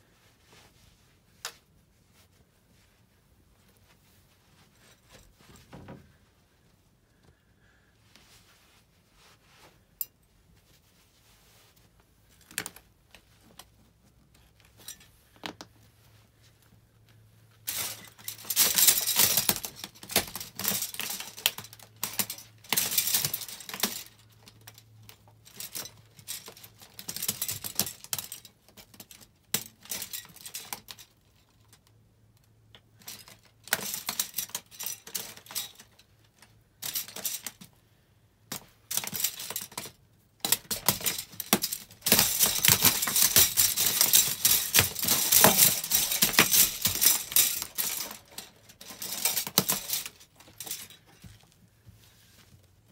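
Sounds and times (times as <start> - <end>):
plastic cutlery cracking and clattering: 17.7 - 31.2, 33.0 - 37.7, 38.5 - 51.4
feet shuffling through plastic: 40.8 - 52.9.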